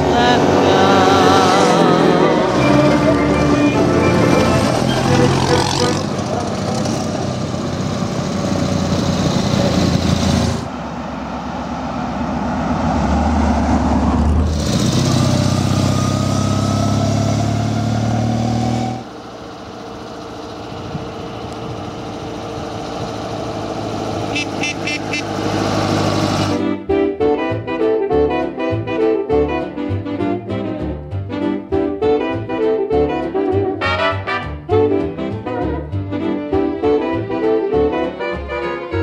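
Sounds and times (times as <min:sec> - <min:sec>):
motorcycle engines passing: 0:00.0 - 0:26.6
engine revving up: 0:00.0 - 0:26.7.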